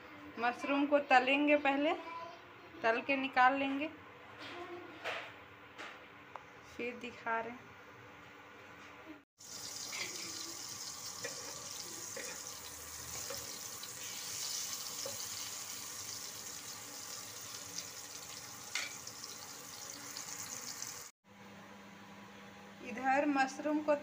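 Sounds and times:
mushrooms sizzling in hot oil: 9.4s - 21.1s.

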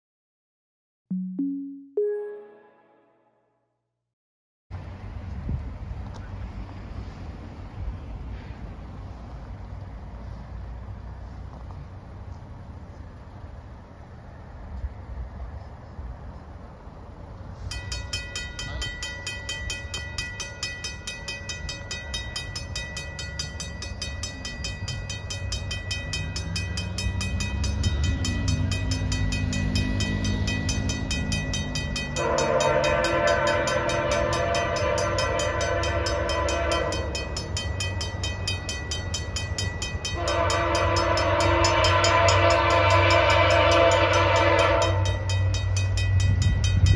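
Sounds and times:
crossing bell ringing: 17.7s - 46.9s
locomotive air horn: 32.2s - 37.4s, 40.1s - 45.3s.

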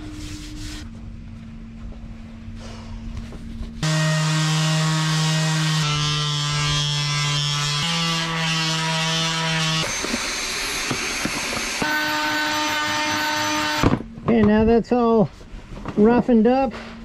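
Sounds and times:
electric sander buzzing: 3.8s - 13.8s.

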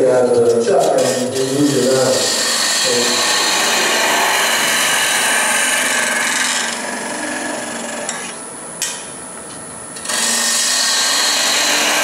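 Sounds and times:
gouge cutting wood on lathe: 0.7s - 8.3s, 10.0s - 12.0s.

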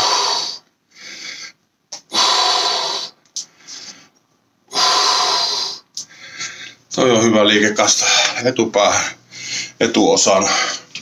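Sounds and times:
man breathing hard: 0.0s - 6.9s, 9.2s - 9.8s.

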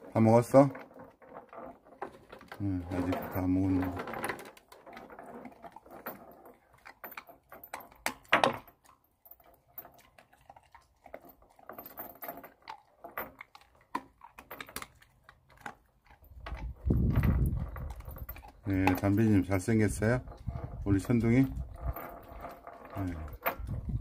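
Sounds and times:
kibble rattling against plastic bowl: 0.0s - 8.8s, 15.6s - 24.0s
collar chain clinking: 0.1s - 24.0s
dog crunching dry food: 2.0s - 24.0s.

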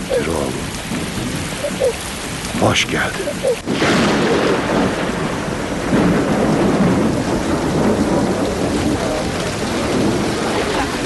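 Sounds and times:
heavy rain falling: 0.0s - 11.0s
low thunder rumble: 0.0s - 11.0s.

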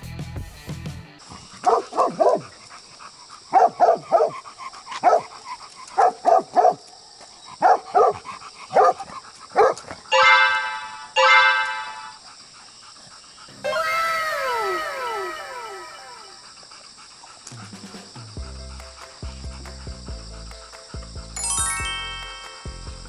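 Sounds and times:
dog barking: 1.6s - 2.5s, 3.5s - 4.4s, 5.0s - 5.4s, 6.0s - 6.8s, 7.6s - 10.0s
dog whining: 13.5s - 16.6s.

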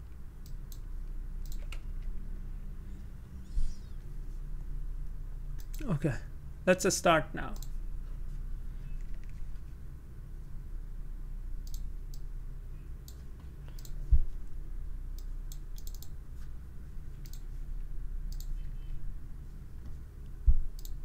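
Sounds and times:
low steady hum: 0.0s - 21.0s
mouse and keyboard clicks: 13.1s - 14.0s, 15.2s - 16.1s.

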